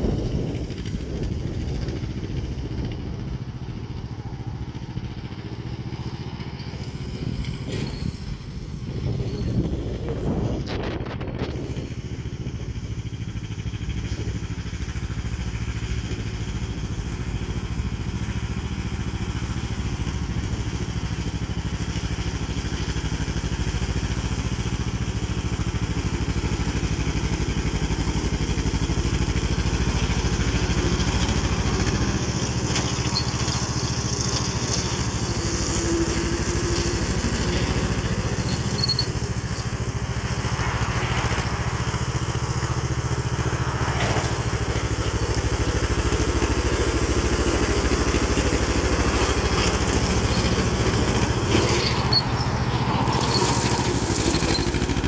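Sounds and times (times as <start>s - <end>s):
rotary cutter cutting grass: 0.0s - 55.0s
tractor engine running under load: 0.0s - 55.0s.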